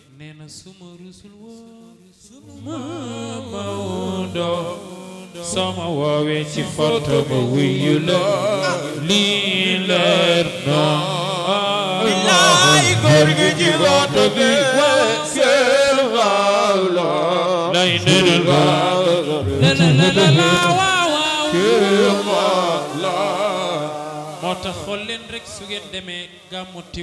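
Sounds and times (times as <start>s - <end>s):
man chanting devotional song: 0.0s - 27.0s.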